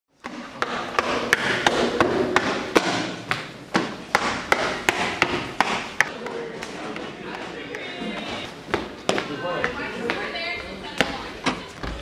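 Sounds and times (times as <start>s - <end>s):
sharp knocks: 0.2s - 6.2s.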